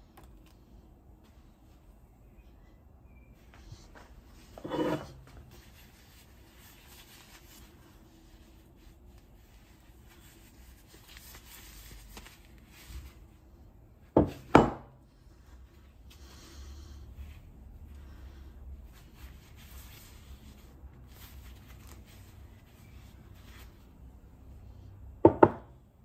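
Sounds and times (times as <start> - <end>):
metal scraping on bench: 4.5 - 5.4.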